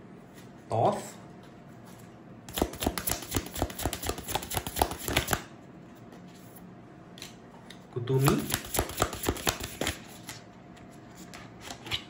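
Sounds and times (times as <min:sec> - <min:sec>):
cards being shuffled: 0:02.5 - 0:05.4, 0:08.2 - 0:10.4.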